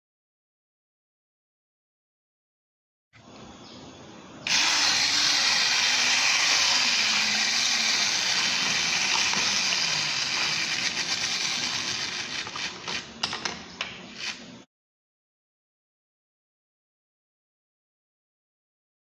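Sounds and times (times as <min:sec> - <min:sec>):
clockwork toy motor whirring: 0:04.4 - 0:13.1.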